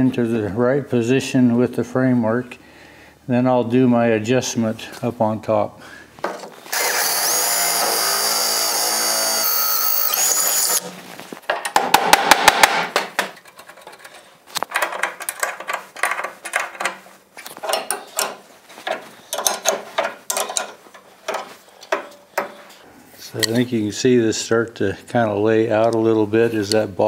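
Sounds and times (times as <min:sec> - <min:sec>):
drill boring through metal: 0:06.7 - 0:10.8
metal clinks and knocks: 0:13.2 - 0:22.7.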